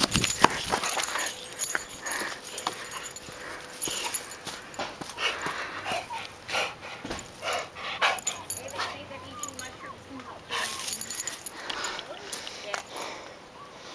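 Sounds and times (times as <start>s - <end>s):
dog breathing hard: 0.1s - 9.7s, 10.5s - 13.4s.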